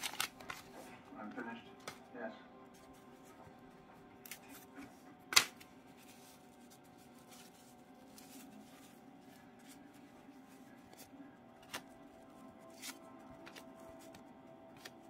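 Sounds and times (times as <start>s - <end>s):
cards rustling and sliding: 0.0s - 1.0s, 4.3s - 15.0s.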